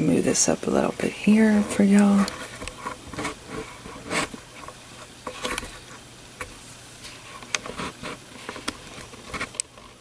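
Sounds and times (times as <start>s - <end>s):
small clicks and taps: 8.4s - 10.0s.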